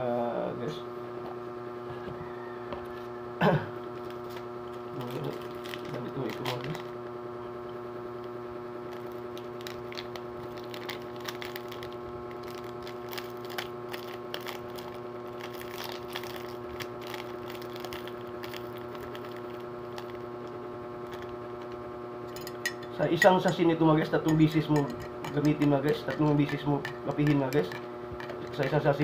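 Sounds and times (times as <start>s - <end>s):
steady hum: 0.0s - 29.0s
plastic sachet crinkling: 4.0s - 6.9s, 8.9s - 20.3s, 21.0s - 21.3s
spoon scraping and tapping: 22.3s - 28.8s.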